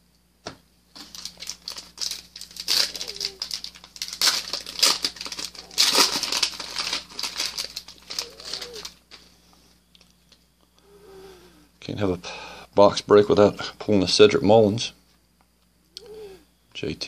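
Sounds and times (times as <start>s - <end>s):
foil wrapper crinkling and tearing: 0.9s - 9.3s.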